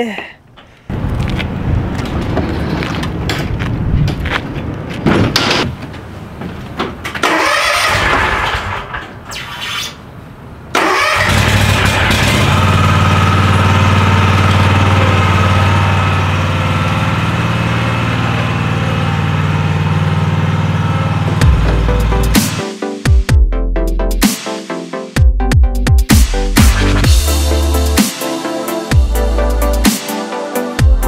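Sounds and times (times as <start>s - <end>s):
trailer ramp door clunking: 5.0s - 9.3s
riding lawn mower engine: 7.1s - 9.0s, 10.7s - 22.6s.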